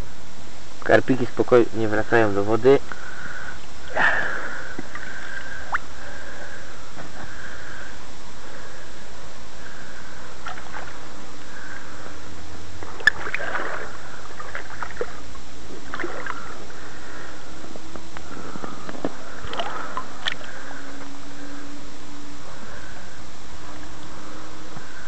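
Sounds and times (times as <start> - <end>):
shallow water sloshing and splashing: 10.4 - 11.1, 12.8 - 17.0, 19.3 - 21.1.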